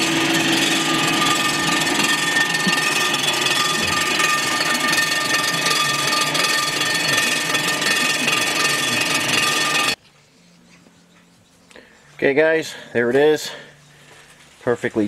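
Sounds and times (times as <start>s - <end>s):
cutter head milling metal: 0.0s - 10.0s
machine whining tones: 0.0s - 10.0s.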